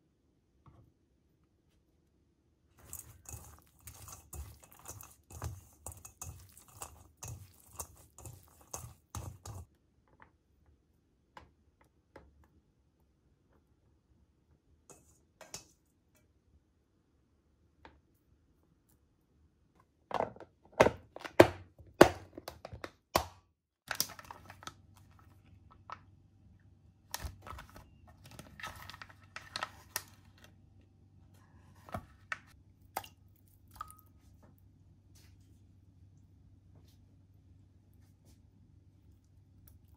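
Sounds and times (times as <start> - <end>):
low steady hum: 24.1 - 39.9.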